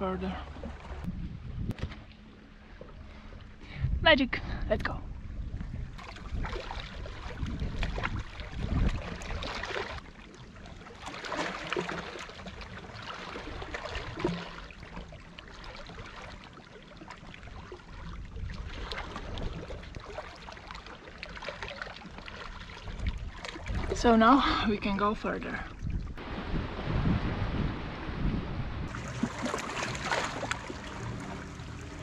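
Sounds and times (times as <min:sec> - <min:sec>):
wind rumble on microphone: 0:00.0 - 0:10.2, 0:17.2 - 0:20.3, 0:22.1 - 0:32.0
sea water splashing on rocks: 0:06.0 - 0:16.6, 0:28.9 - 0:32.0
person swimming splashes: 0:06.0 - 0:24.0, 0:28.9 - 0:32.0.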